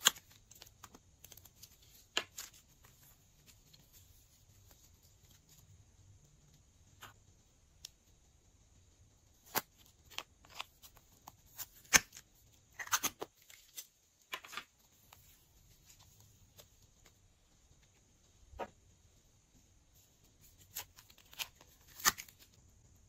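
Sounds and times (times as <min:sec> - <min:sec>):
soft clay handling: 0:00.0 - 0:23.0.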